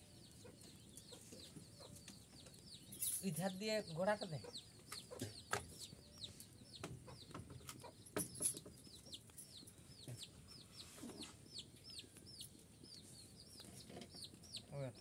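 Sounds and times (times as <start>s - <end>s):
small bird chirping: 0.0s - 15.0s.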